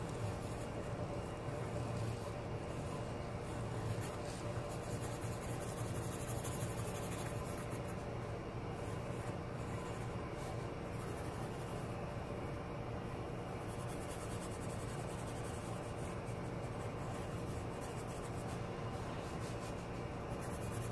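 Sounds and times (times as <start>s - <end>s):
steady low hum: 0.0s - 20.9s
pencil scratching on paper: 1.8s - 8.1s, 8.8s - 12.0s, 13.6s - 20.9s.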